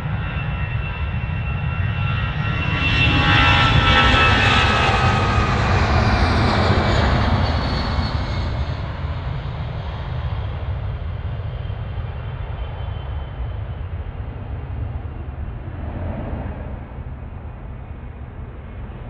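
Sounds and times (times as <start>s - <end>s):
jet engines rushing and whining: 0.0s - 19.0s
low rumble: 13.9s - 19.0s.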